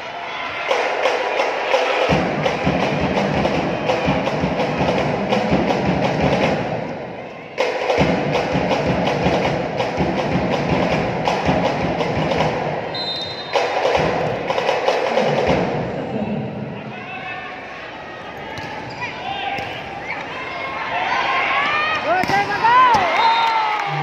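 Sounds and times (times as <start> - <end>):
crowd cheering: 0.0 - 5.9, 12.2 - 24.0
arena music: 0.6 - 17.0
percussive hits and drum beats: 0.7 - 16.1.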